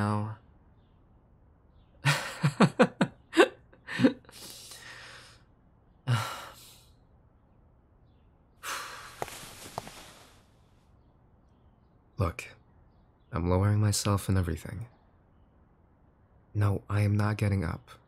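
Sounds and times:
man chuckling: 2.0s - 4.4s
breathy sighs: 3.9s - 5.5s, 6.1s - 7.0s, 8.6s - 9.4s.

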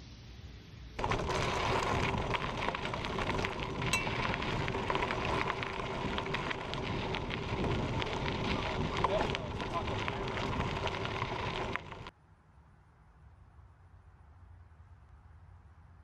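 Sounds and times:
tyres crunching on gravel: 1.0s - 12.1s
wind buffeting microphone: 1.0s - 12.1s.

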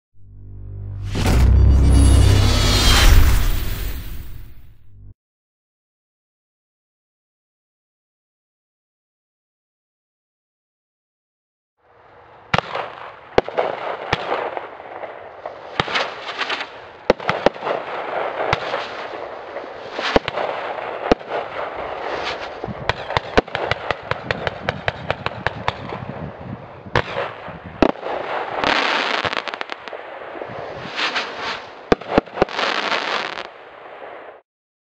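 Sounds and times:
firework bangs: 12.5s - 34.4s
firework hissing and crackling: 15.5s - 24.1s, 27.8s - 33.6s.

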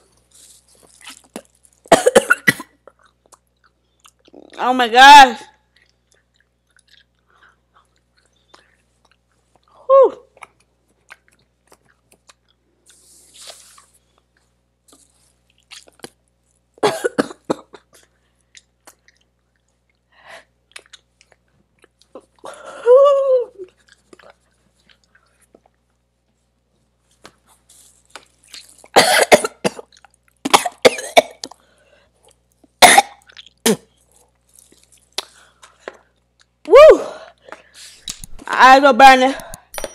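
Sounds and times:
person coughing: 1.9s - 2.8s, 16.8s - 18.0s, 29.0s - 29.9s, 30.5s - 31.4s, 32.8s - 33.9s
person exclaiming ooh: 9.8s - 10.3s, 22.8s - 23.7s, 36.7s - 37.2s.

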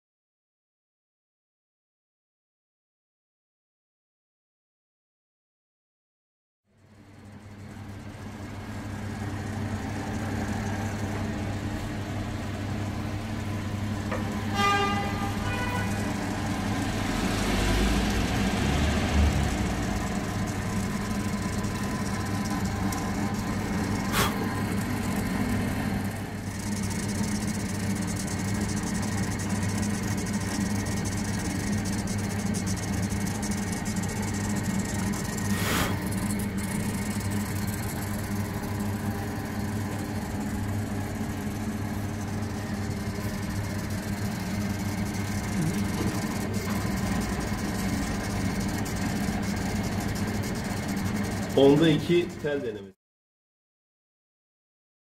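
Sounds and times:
steady electrical hum: 6.8s - 52.9s
drilling machine running: 7.1s - 52.8s
short pitched tone: 14.4s - 16.4s.

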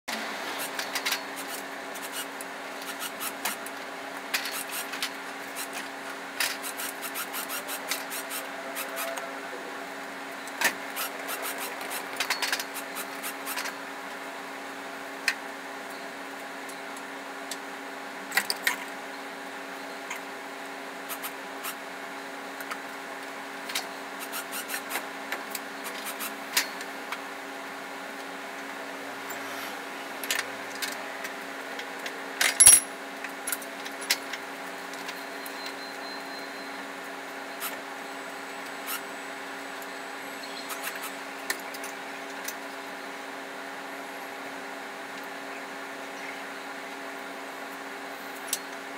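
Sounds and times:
metallic clinks and knocks: 32.5s - 33.0s.

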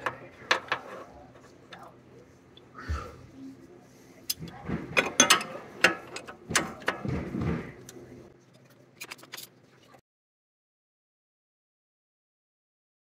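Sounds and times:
hand tools clanking on metal: 4.3s - 7.3s.

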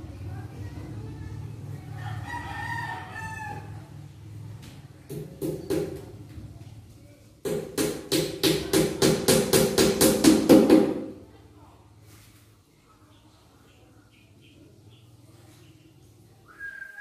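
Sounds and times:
rooster crowing: 1.9s - 4.0s
sharp knocks: 5.1s - 6.1s, 7.4s - 11.1s.

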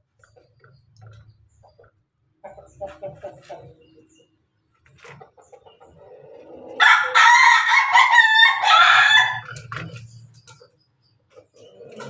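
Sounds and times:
rooster crowing: 6.8s - 9.5s.

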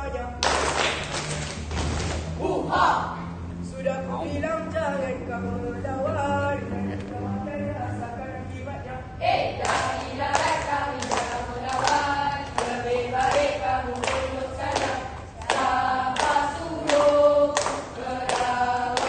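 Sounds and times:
rhythmic claps or stamps: 0.4s - 2.3s, 9.6s - 19.0s
group singing in unison: 9.2s - 19.0s.

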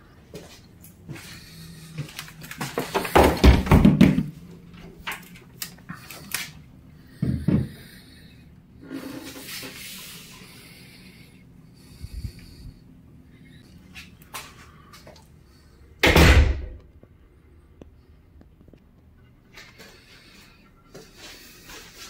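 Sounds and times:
knocks and bumps of handling: 2.6s - 4.4s.

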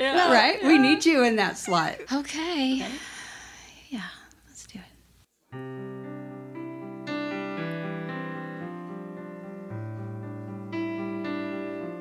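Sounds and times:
piano chords: 5.5s - 12.0s.

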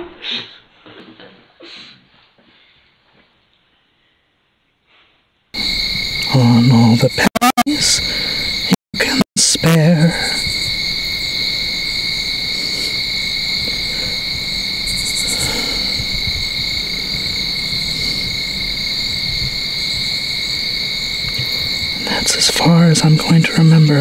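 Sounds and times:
crickets trilling: 5.6s - 24.0s.

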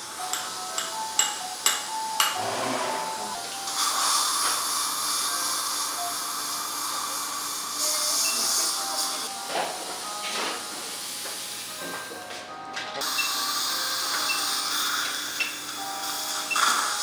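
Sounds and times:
irrigation spray hiss: 3.5s - 9.3s, 13.0s - 17.0s.

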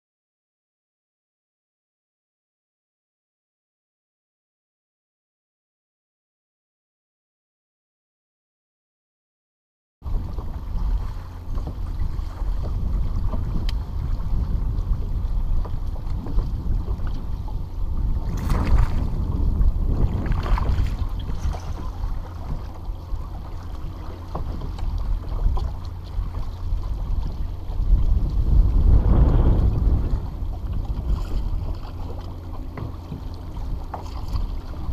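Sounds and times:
waves lapping against hull: 10.0s - 34.9s
wind buffeting microphone: 10.0s - 34.9s.

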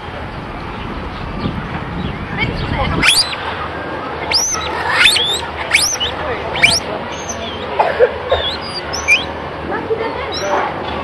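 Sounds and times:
outdoor background: 0.0s - 11.0s
animal squeaking calls: 2.9s - 3.4s, 4.2s - 9.4s, 10.3s - 10.7s.

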